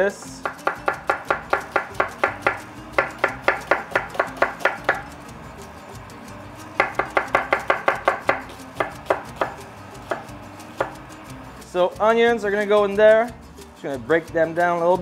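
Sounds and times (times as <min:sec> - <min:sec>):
knife chopping on wooden board: 0:00.4 - 0:05.1, 0:06.8 - 0:11.0.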